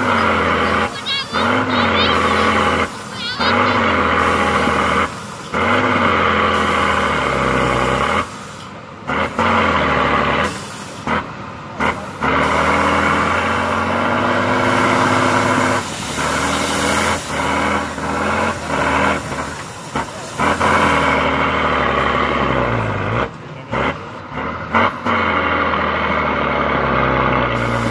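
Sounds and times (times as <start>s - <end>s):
diesel truck engine revving: 0.0s - 27.9s
hiss: 14.9s - 21.0s.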